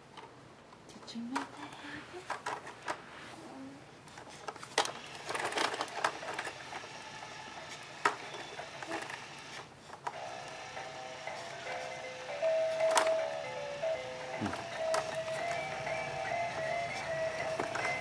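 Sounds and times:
plastic toy clicking and rattling: 0:02.3 - 0:03.0, 0:04.2 - 0:07.0, 0:12.7 - 0:13.3, 0:16.6 - 0:18.0
electronic toy melody: 0:10.2 - 0:18.0.

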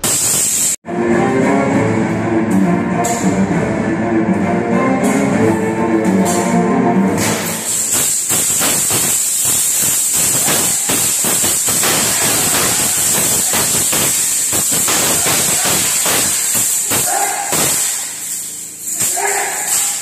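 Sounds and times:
background music: 0:00.8 - 0:07.8
sword strikes and clatters: 0:07.2 - 0:20.0
steady hiss: 0:07.3 - 0:20.0.

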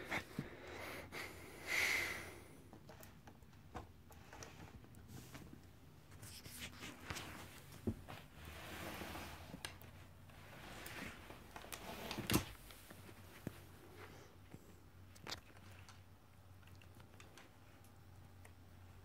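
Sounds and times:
soft scuffling rustles: 0:04.7 - 0:15.4.

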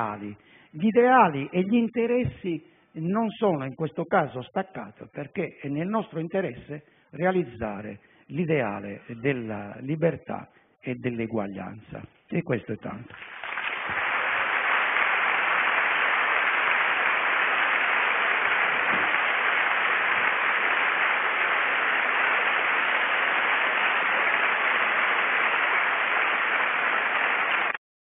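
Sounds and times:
audience applauding: 0:13.1 - 0:27.8.

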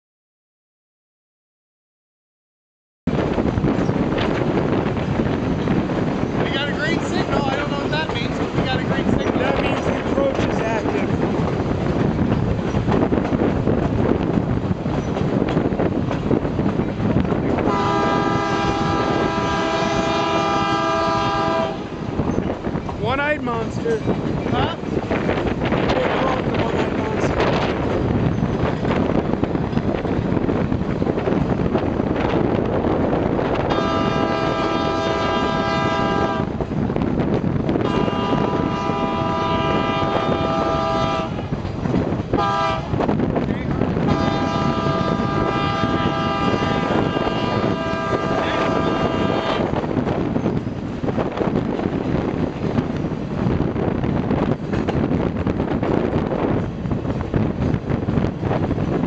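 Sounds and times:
train wheels rumbling on rails: 0:03.1 - 0:59.0
wind from open window: 0:03.1 - 0:59.0
train horn blasts: 0:17.6 - 0:22.0, 0:33.6 - 0:36.6, 0:37.8 - 0:41.4, 0:42.3 - 0:43.0, 0:44.0 - 0:49.8.

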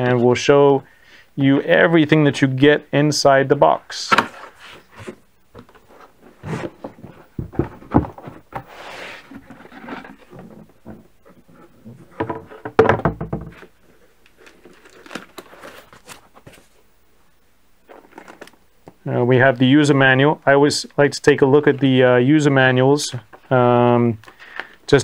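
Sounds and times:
cardboard box flaps scraping: 0:06.3 - 0:10.7
heavy thump: 0:06.5 - 0:08.7.

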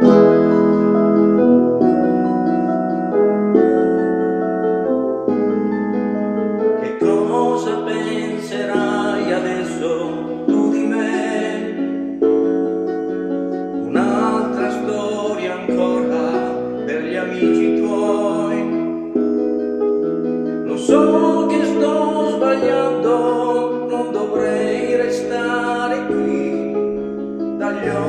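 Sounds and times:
karaoke backing track: 0:00.0 - 0:28.0
man singing into microphone: 0:06.8 - 0:12.3, 0:13.8 - 0:19.0, 0:20.6 - 0:28.0.

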